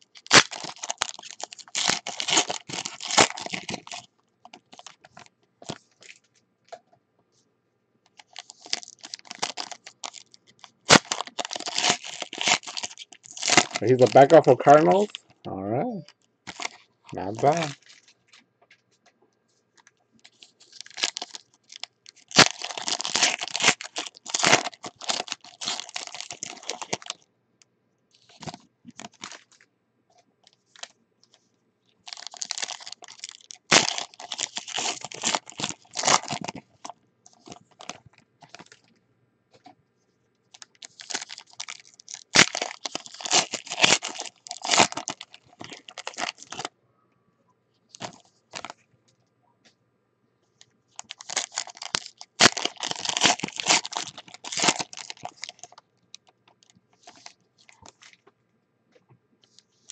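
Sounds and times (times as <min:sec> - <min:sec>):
foil wrappers tearing and crinkling: 0:00.0 - 0:06.2, 0:08.1 - 0:15.3, 0:16.5 - 0:18.4, 0:20.2 - 0:27.2, 0:28.2 - 0:29.6, 0:32.0 - 0:38.8, 0:40.5 - 0:46.7, 0:48.0 - 0:48.8, 0:51.0 - 0:58.2.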